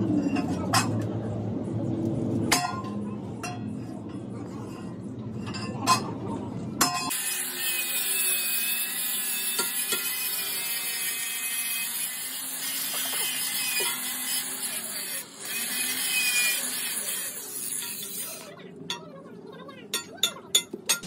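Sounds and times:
angle grinder grinding steel: 0:07.1 - 0:18.5.

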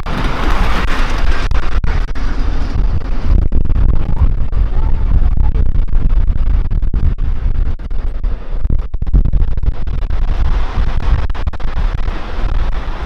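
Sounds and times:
miniature train rumbling: 0:00.0 - 0:09.1
wind buffeting microphone: 0:00.0 - 0:13.0.

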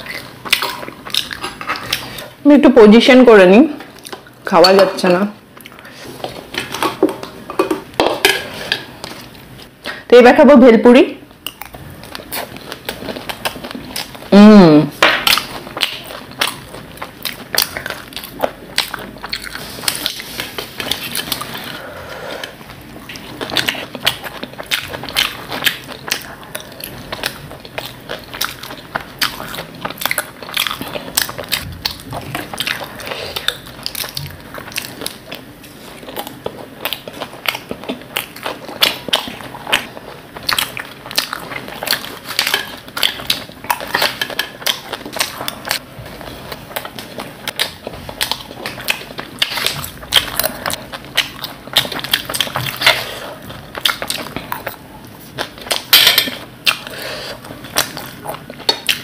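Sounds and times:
crunchy chewing: 0:11.4 - 0:14.3, 0:15.2 - 0:59.0.

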